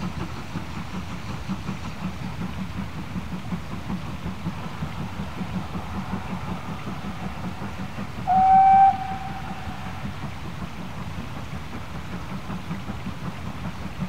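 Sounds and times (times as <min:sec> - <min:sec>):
steam locomotive exhaust beat: 0:00.0 - 0:14.0
steam whistle blast: 0:08.2 - 0:10.3.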